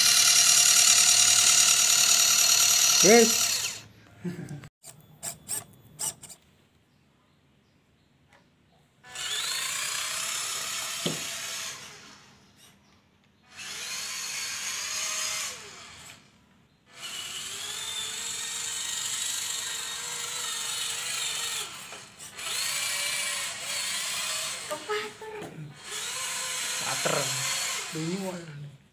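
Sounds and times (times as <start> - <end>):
small electric motor whining: 0.0 - 3.9, 9.0 - 12.8, 13.5 - 28.6.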